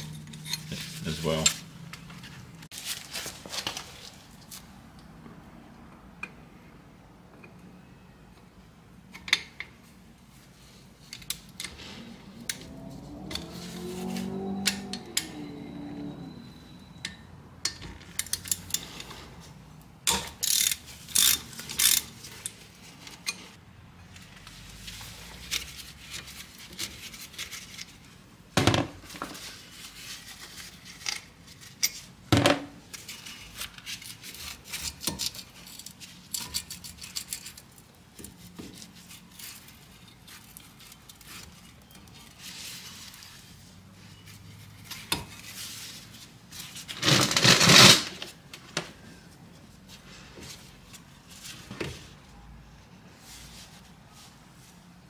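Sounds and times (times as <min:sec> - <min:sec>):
wrench clicking on metal bolts: 0:20.1 - 0:22.1.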